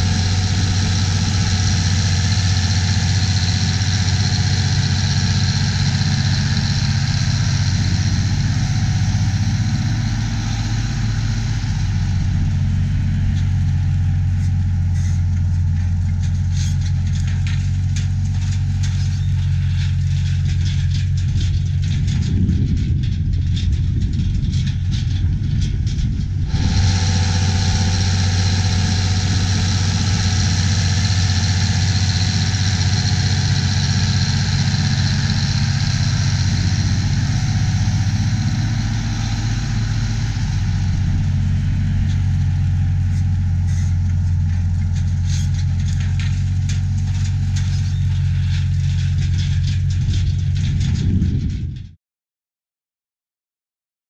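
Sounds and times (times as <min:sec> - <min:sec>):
motor humming: 0:25.9 - 0:48.8.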